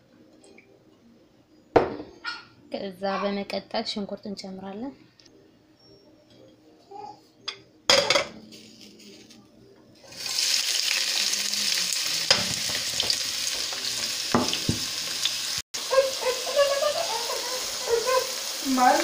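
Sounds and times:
onions sizzling in hot oil: 0:10.0 - 0:19.0.

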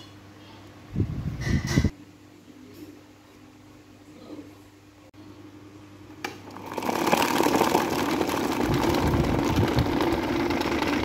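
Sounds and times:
fan blades whirring: 0:06.2 - 0:11.0.

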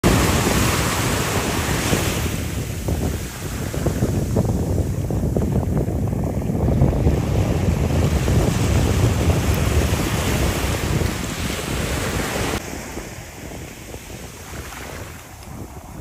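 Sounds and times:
surf breaking: 0:00.0 - 0:05.4
wind buffeting microphone: 0:00.0 - 0:16.0.

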